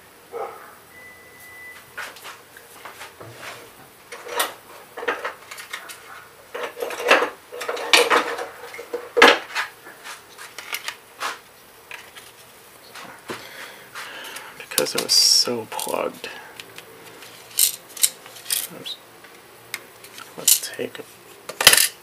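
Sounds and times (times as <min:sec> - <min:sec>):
metal parts clinking on a tray: 0:17.4 - 0:18.8, 0:20.4 - 0:20.8, 0:21.5 - 0:22.0.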